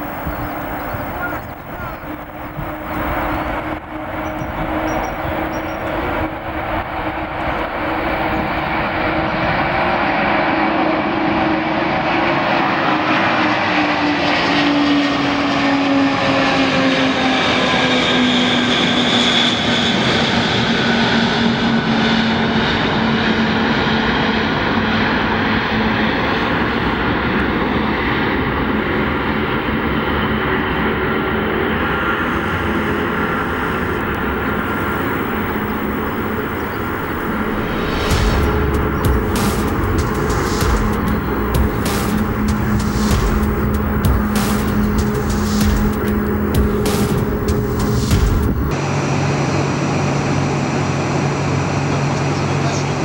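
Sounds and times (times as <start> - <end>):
jet aircraft roaring overhead: 0.0 - 53.0.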